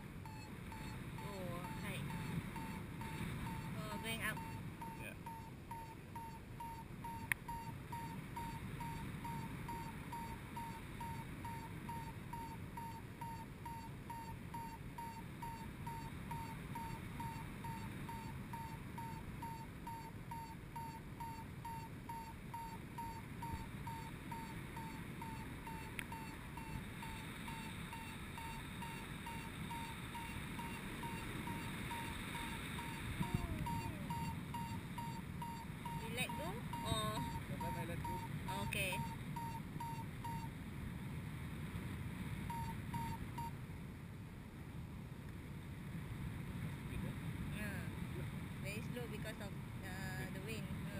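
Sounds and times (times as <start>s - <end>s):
variometer short beeps: 0.2s - 40.5s, 42.5s - 43.6s.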